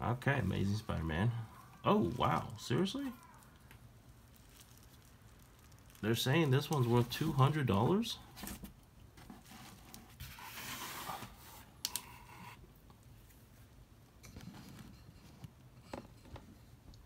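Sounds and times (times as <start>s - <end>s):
comic book rustling and scraping: 5.8s - 12.6s, 14.3s - 16.7s.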